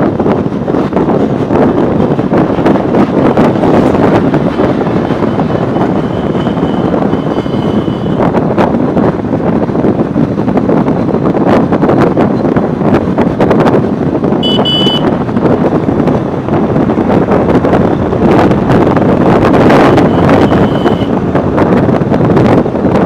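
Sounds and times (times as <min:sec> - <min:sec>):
road and vehicle noise: 0:00.0 - 0:23.0
wind buffeting microphone: 0:00.0 - 0:23.0
short high beep: 0:14.4 - 0:15.0, 0:20.0 - 0:21.1.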